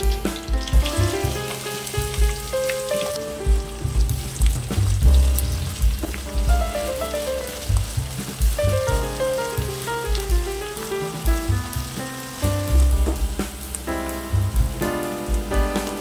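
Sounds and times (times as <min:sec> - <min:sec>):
background music with bass beat: 0:00.0 - 0:16.0
onions sizzling in oil: 0:00.0 - 0:16.0.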